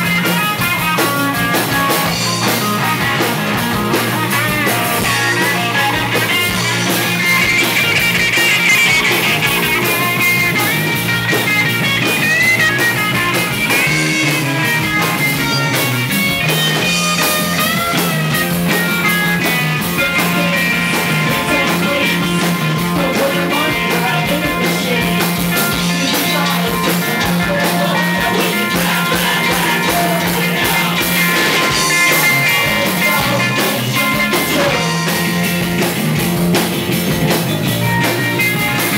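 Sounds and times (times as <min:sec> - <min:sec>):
live rock band playing: 0:00.0 - 0:38.9.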